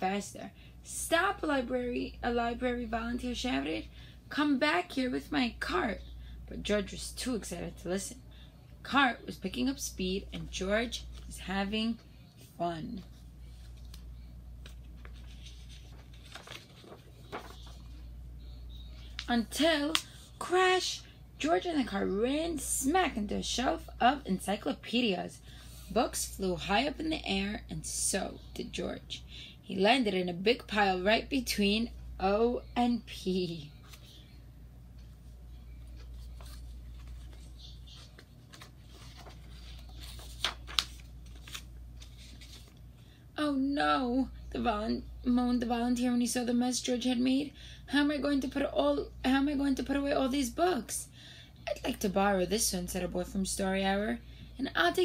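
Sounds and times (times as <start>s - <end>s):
steady low hum: 0.0s - 55.0s
book pages turning: 13.5s - 18.1s, 33.8s - 34.2s, 35.7s - 42.9s.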